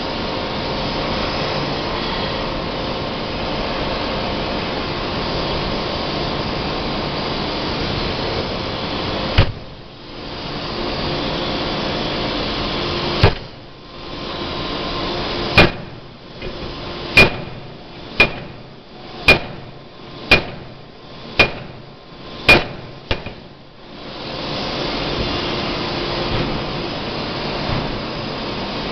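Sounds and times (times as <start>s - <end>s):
forging hammer banging: 9.4s - 9.8s, 13.2s - 13.6s, 15.5s - 23.6s.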